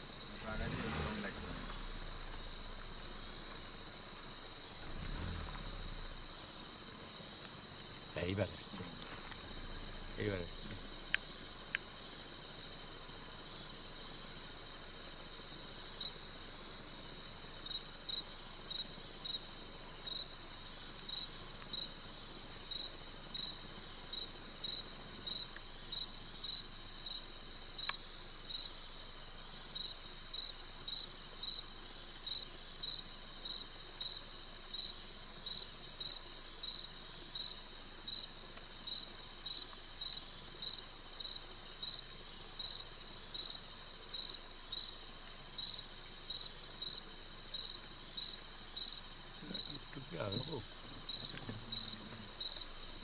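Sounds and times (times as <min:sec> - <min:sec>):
crickets shrilling: 0:00.0 - 0:14.5, 0:34.0 - 0:53.0
pulsed insect chirp: 0:00.0 - 0:53.0.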